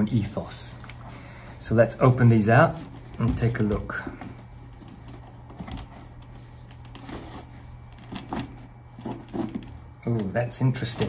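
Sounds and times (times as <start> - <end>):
cloth bag rustling: 2.6 - 10.0
soft handling clicks and knocks: 2.8 - 10.4.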